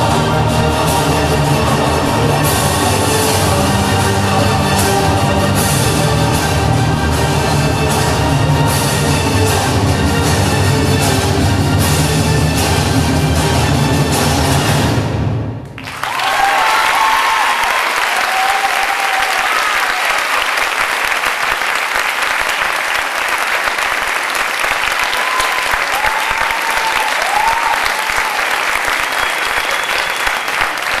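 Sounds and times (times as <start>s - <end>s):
recorded dance music: 0.0s - 14.8s
audience applause: 15.8s - 31.0s.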